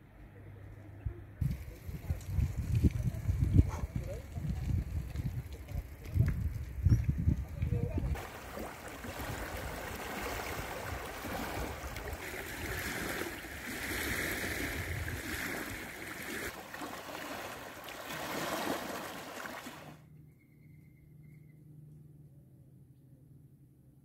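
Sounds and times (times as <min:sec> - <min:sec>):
water current rushing: 0:08.1 - 0:20.0.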